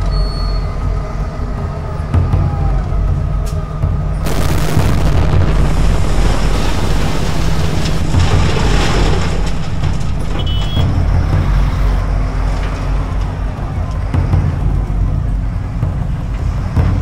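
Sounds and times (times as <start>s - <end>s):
truck engine rumble: 4.1s - 16.6s
tyres on gravel road: 4.2s - 15.0s.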